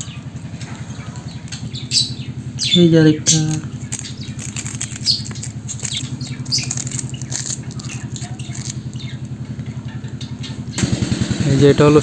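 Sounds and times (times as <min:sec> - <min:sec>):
birds chirping and squawking: 0:00.0 - 0:10.9
engine throbbing: 0:00.0 - 0:12.0.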